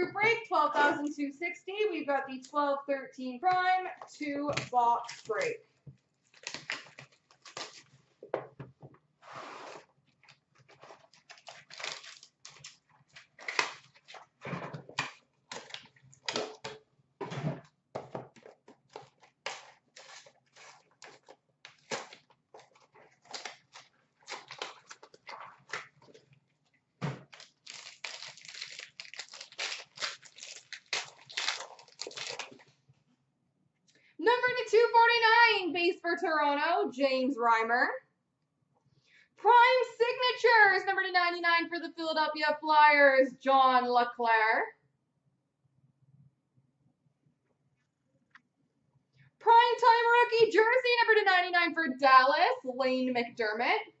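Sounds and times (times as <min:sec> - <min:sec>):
wrapping tearing and crinkling: 0:04.7 - 0:05.5, 0:06.2 - 0:08.0, 0:09.7 - 0:16.8, 0:18.4 - 0:32.8.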